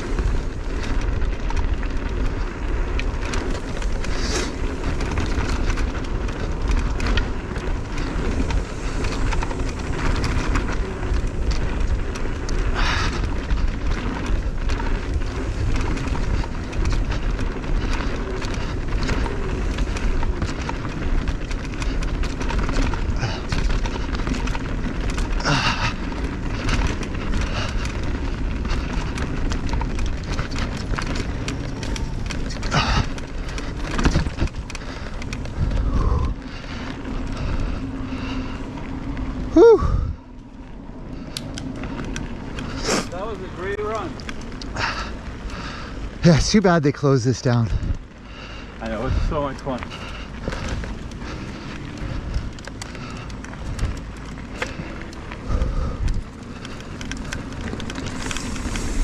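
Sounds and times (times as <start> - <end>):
bike tyres rolling on dirt: 0.0 - 59.0
wind on microphone: 21.8 - 40.3.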